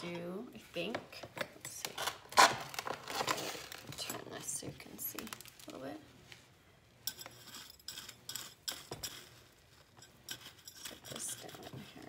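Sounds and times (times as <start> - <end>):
trowel clinking on ceramic pot: 7.1 - 11.8.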